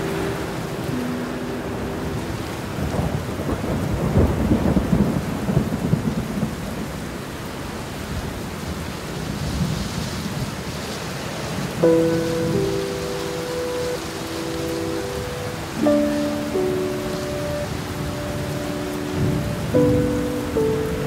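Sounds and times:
steady rain: 0.0 - 21.0
rumble of thunder: 2.6 - 7.1.

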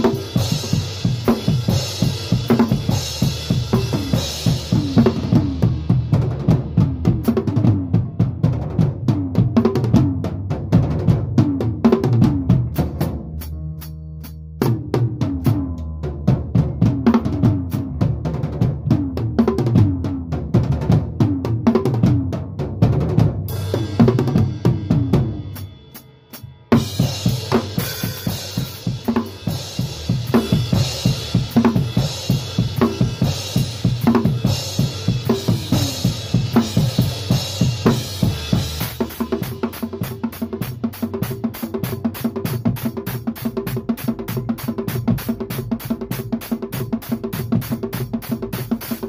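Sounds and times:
cymbals: 0.0 - 6.1, 23.5 - 42.9
drum kit beat: 0.0 - 49.0.

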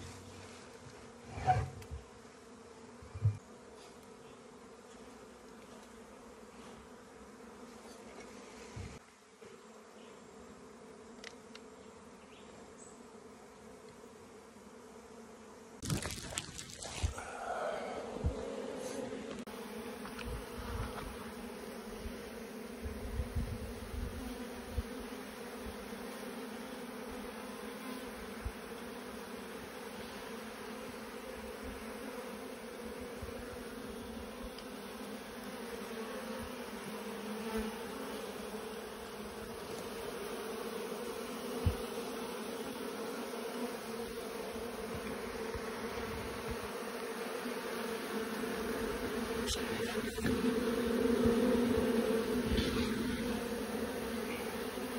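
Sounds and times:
honeybees buzzing: 0.0 - 54.9.

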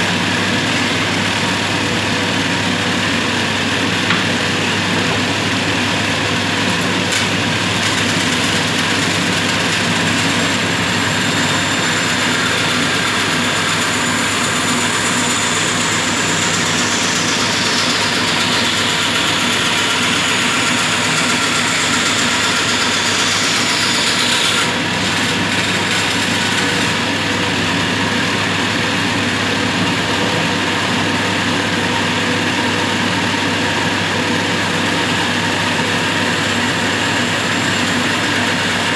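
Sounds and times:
bandsaw motor humming: 0.0 - 38.9
saw blade cutting wood: 6.7 - 27.5, 34.6 - 38.9.

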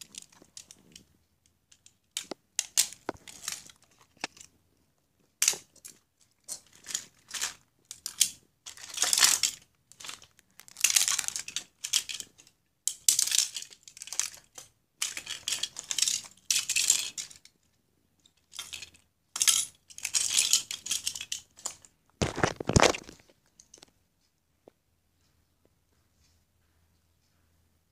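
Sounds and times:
toy cars clinking and clattering: 0.0 - 1.1, 1.7 - 4.6, 5.4 - 17.6, 18.2 - 23.9.

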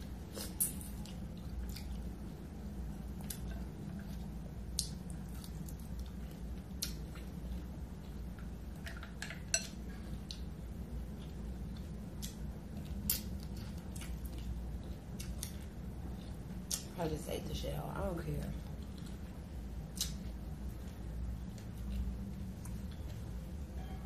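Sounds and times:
wet eating smacks: 19.9 - 20.4.

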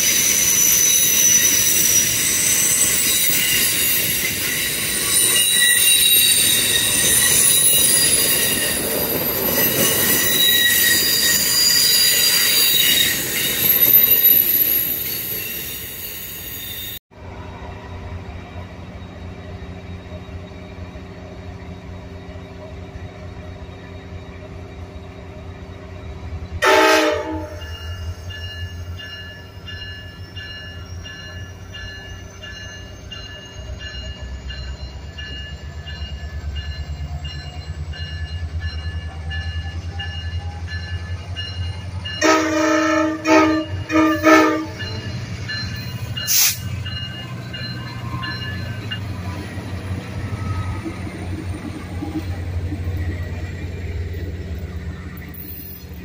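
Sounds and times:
locomotive horn blasts: 26.6 - 27.8, 42.2 - 45.1.

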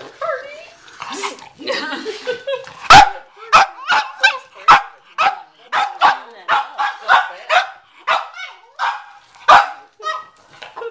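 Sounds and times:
dog barking rapidly: 2.9 - 10.2.

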